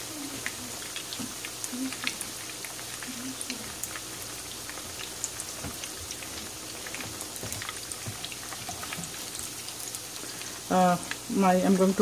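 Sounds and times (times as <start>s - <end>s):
chicken deep-frying in oil: 0.0s - 12.0s.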